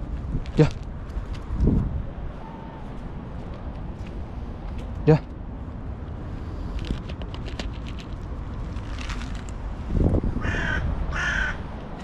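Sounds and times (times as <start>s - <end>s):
steady low rumble: 0.0s - 12.0s
crow cawing: 10.4s - 11.6s.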